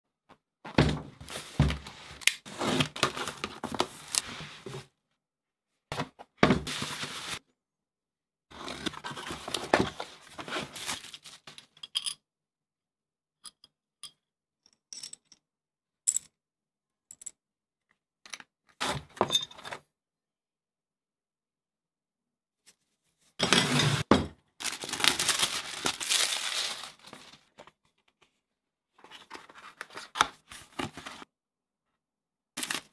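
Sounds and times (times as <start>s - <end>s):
cardboard tearing and rustling: 24.6s - 27.4s.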